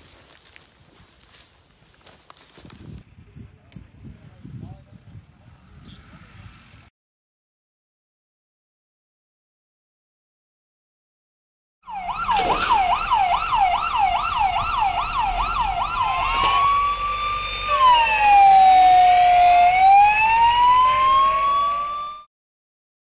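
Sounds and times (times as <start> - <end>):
emergency vehicle siren: 11.8 - 22.3.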